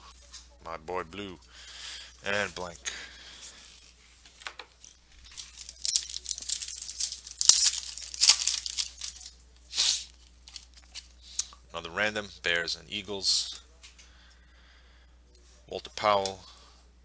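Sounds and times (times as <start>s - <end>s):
foil wrapper crinkling and tearing: 5.2s - 11.4s
foil wrapper snap: 5.3s - 11.5s.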